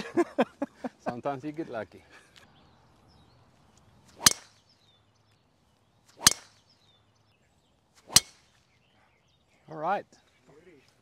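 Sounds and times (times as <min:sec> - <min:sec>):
golf club striking ball: 0:04.1 - 0:04.6, 0:06.2 - 0:06.7, 0:08.1 - 0:08.5.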